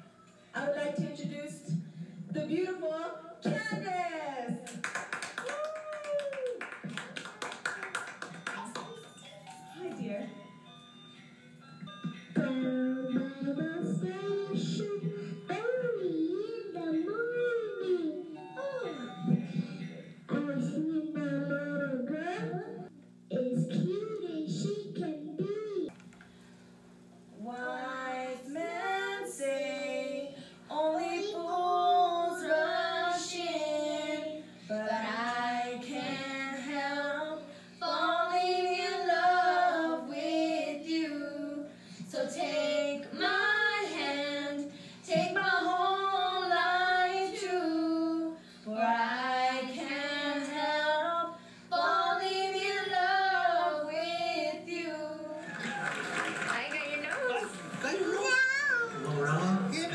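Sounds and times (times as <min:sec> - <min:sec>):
girls singing: 0:27.4 - 0:55.5.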